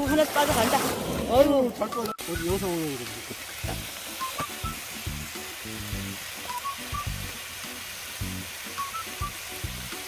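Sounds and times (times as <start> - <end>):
background music: 1.4 - 10.0
food sizzling on a griddle: 2.2 - 10.0.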